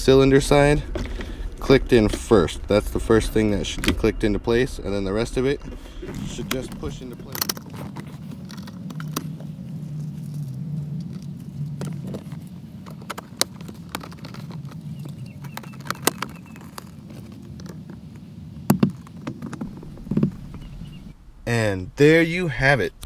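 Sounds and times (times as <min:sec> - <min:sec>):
steady low hum: 0:00.0 - 0:12.9, 0:19.6 - 0:23.0.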